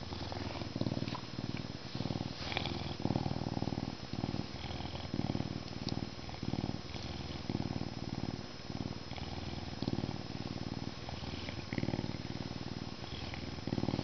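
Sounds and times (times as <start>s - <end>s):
lynx purring: 0.0s - 14.0s.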